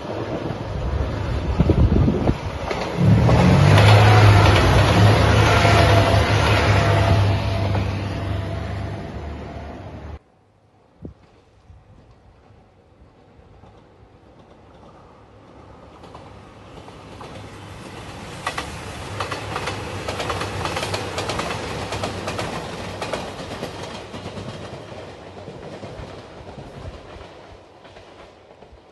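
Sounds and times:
diesel train engine hum: 0.0 - 11.0
train wheels clicking over rail joints: 2.1 - 8.0, 13.6 - 28.9.

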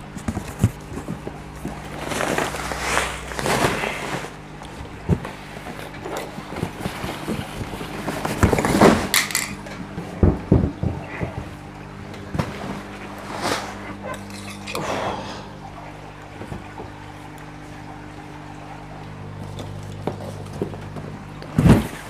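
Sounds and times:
plastic sacks rustling: 0.0 - 9.2
steady low hum: 0.0 - 22.0.

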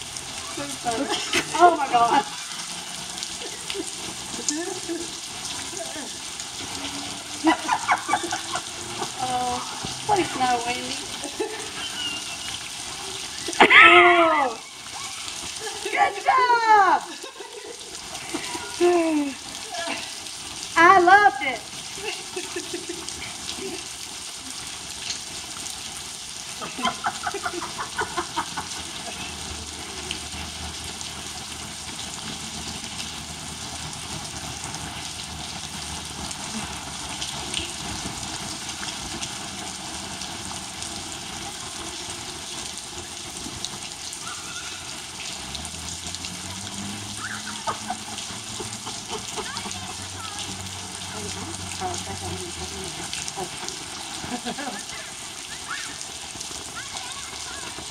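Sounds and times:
rain falling on grass: 0.0 - 57.9
loud high shout: 13.5 - 15.3, 15.9 - 17.1, 44.2 - 45.0, 47.2 - 48.0, 54.8 - 56.0, 56.7 - 57.9
burst of voices: 49.2 - 53.6, 54.7 - 57.9.

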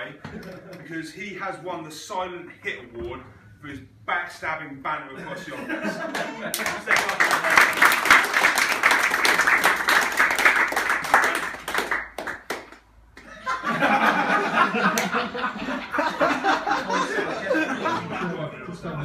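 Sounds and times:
people laughing: 0.2 - 0.9, 5.2 - 8.0, 13.2 - 19.0
people clapping: 6.0 - 13.3, 14.8 - 15.2.

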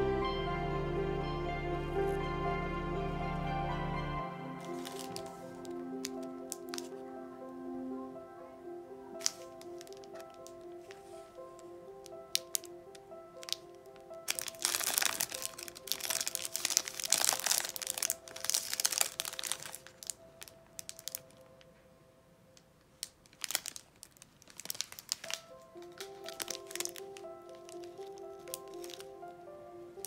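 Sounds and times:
soft background music: 0.0 - 23.8, 24.5 - 30.0
plastic wrapper crinkling: 4.6 - 7.2, 9.1 - 21.7, 22.8 - 29.4.

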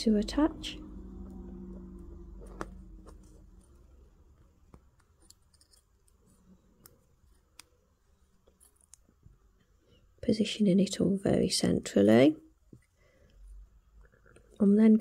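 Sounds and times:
wire ends tapping and scraping: 4.7 - 6.2.

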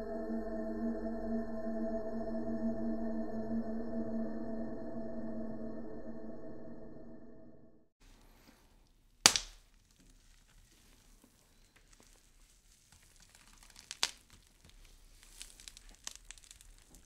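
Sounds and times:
loud sharp crack: 9.2 - 9.6
faint crackling and clicks: 9.7 - 17.0.

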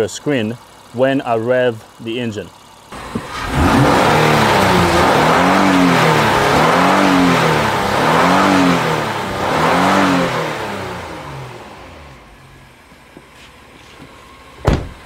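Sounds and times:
car engine revving: 2.9 - 13.0.

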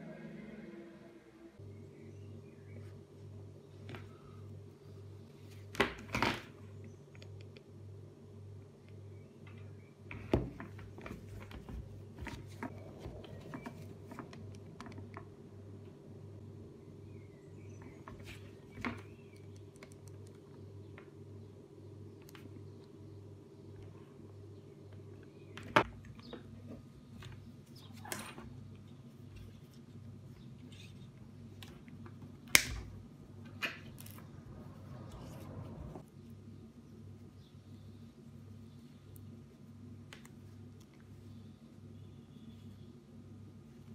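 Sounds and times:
knocks and rustles of handling: 9.4 - 15.3
low pulsing hum: 10.8 - 27.9, 28.5 - 40.0
small clicks and taps: 18.8 - 21.1.

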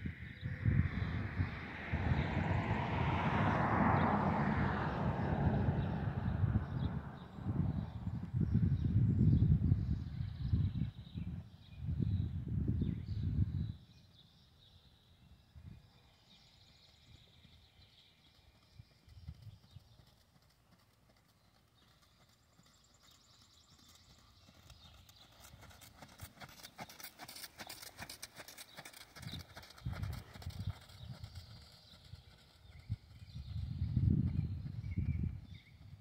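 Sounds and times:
horse hooves trotting on sand: 16.3 - 36.0.

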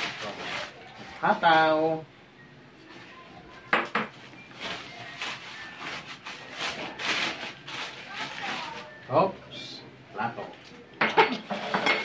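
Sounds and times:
newspaper rustling and crumpling: 0.0 - 1.8, 4.5 - 9.0.

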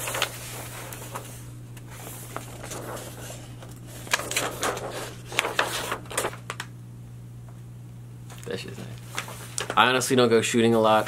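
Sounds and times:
paper crinkling: 0.0 - 6.7, 8.3 - 10.0
paper poster rustling: 0.0 - 6.7, 8.3 - 11.0
steady low hum: 0.0 - 11.0.

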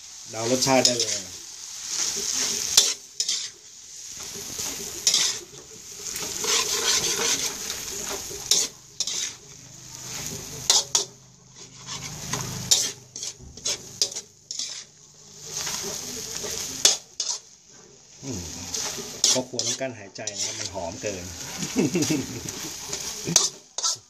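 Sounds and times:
food sizzling in a pan: 0.0 - 24.0
spatula clinking and scraping pan: 0.3 - 24.0.

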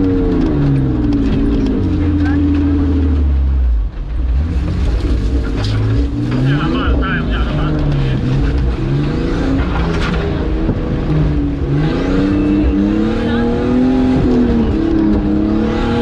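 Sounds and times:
car engine revving from inside cab: 4.3 - 16.0.

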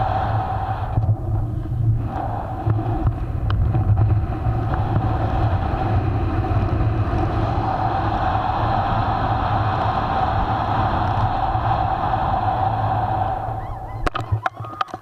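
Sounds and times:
faint steady whistle: 0.0 - 3.1, 7.3 - 14.8
wind buffeting microphone: 0.0 - 15.0.

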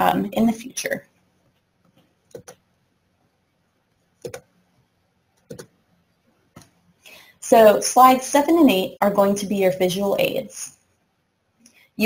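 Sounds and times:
computer mouse clicks: 1.8 - 2.6, 4.2 - 4.5, 5.4 - 5.8.

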